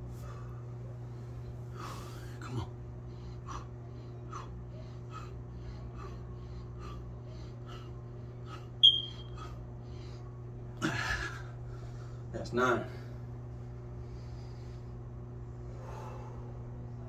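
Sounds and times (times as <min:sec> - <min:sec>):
low electrical hum: 0:00.0 - 0:17.0
high squeak: 0:08.8 - 0:09.3.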